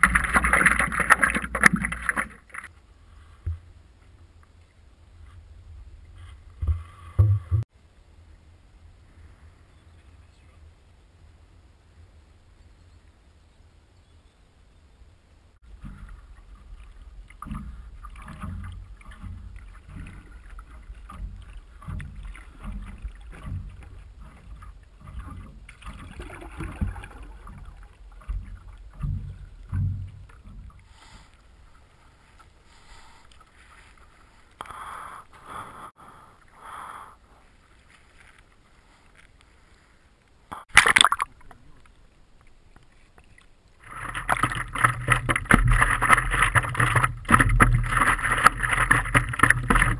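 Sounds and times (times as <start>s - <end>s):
muffled underwater thuds: 0.0s - 2.7s, 6.2s - 7.7s, 15.6s - 31.4s, 43.8s - 49.9s
water sloshing: 0.0s - 3.7s, 15.6s - 36.6s, 37.2s - 49.9s
water splashes: 0.0s - 7.7s, 15.6s - 49.9s.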